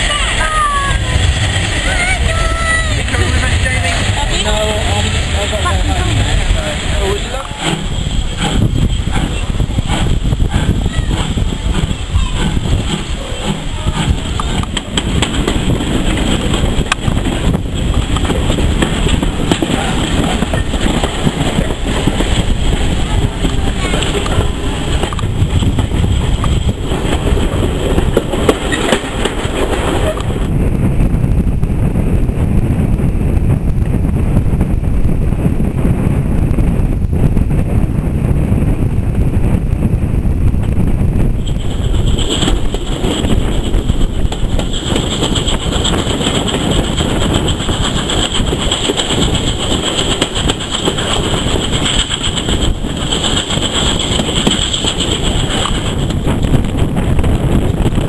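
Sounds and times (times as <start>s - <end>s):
train wheels rumbling on rails: 0.0s - 58.0s.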